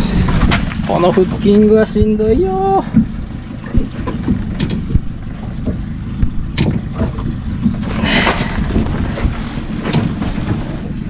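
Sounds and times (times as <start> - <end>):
fishing boat engine rumble: 0.0 - 11.0
wind on microphone: 0.0 - 11.0.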